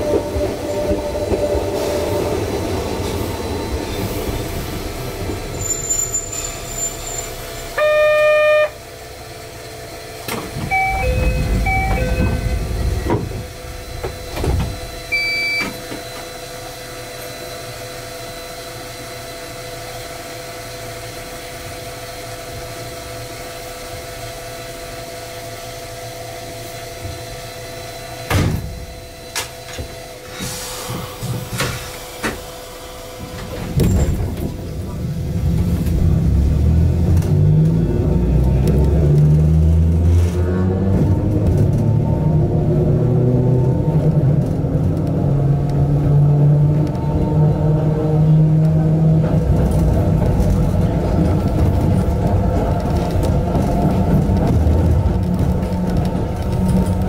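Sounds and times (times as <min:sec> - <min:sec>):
train rumbling away: 0:00.0 - 0:15.2, 0:15.9 - 0:57.0
train equipment humming: 0:00.0 - 0:57.0
loud steady tone: 0:05.6 - 0:09.3, 0:10.6 - 0:16.0
short beeps: 0:07.8 - 0:08.8, 0:10.7 - 0:12.6, 0:15.1 - 0:15.8
thump: 0:28.3 - 0:28.8.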